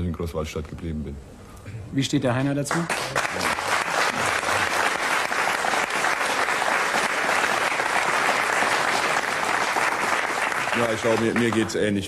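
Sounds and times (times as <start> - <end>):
studio audience applauding: 2.6 - 12.0.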